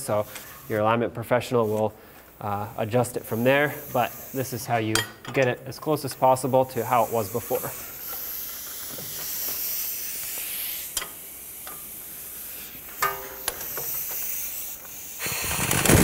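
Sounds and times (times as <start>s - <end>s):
power ratchet buzz: 12.8s - 16.0s.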